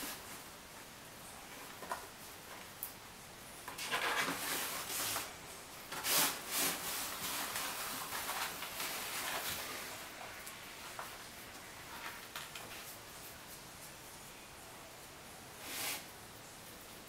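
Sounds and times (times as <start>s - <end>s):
ferrets scraping fabric and cardboard: 3.8s - 5.3s, 5.9s - 10.2s, 15.6s - 16.1s.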